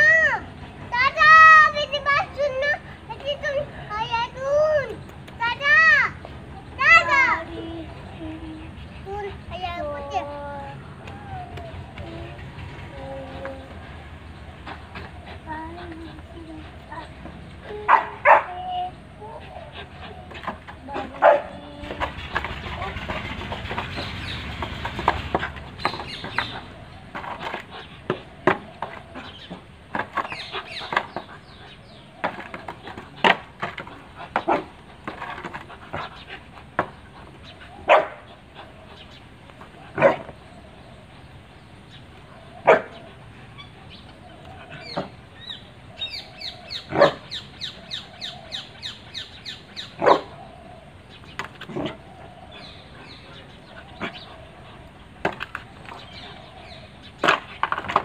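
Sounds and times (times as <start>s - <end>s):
dog barking: 17.9s - 18.5s, 21.2s - 21.5s, 37.9s - 38.2s, 40.0s - 40.3s, 42.6s - 43.0s, 46.9s - 47.2s, 50.0s - 50.3s.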